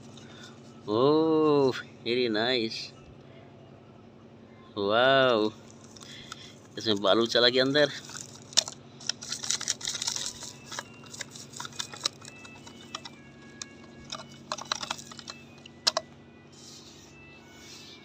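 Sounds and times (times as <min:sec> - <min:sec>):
hand digging through dry sand: 0:16.5 - 0:18.0.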